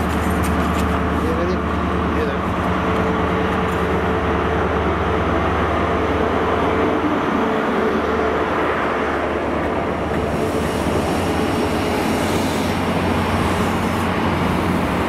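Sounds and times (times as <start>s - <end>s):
diesel train engine drone: 0.0s - 15.0s
train wheels rumbling on rails: 0.0s - 15.0s.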